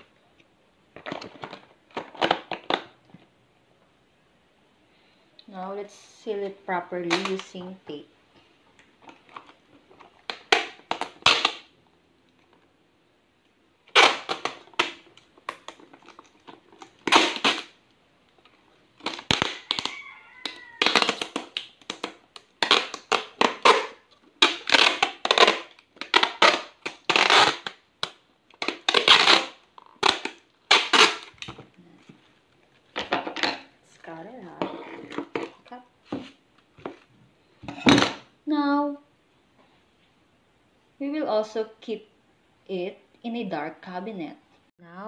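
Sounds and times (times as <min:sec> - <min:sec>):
tape ripping off roll: 0:10.1 - 0:11.8, 0:13.8 - 0:17.8, 0:18.4 - 0:31.7.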